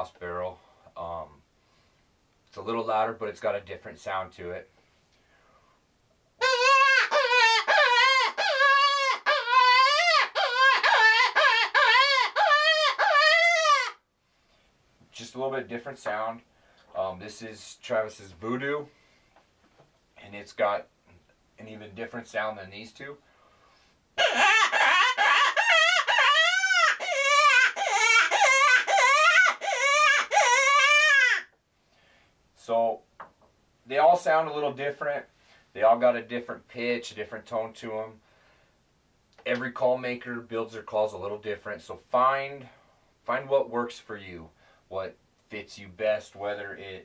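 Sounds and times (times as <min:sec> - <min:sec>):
predator call wailing cries: 0:06.4 - 0:14.0, 0:24.2 - 0:31.5.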